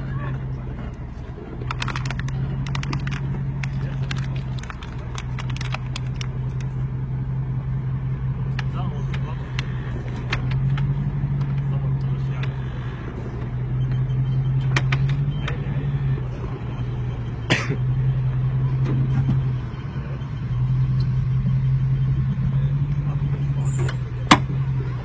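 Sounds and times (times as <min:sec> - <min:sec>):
engine crawling over rocks: 0:00.0 - 0:25.0
sharp clicks and knocks: 0:01.6 - 0:06.7, 0:08.5 - 0:11.7, 0:14.6 - 0:15.6, 0:23.8 - 0:24.7.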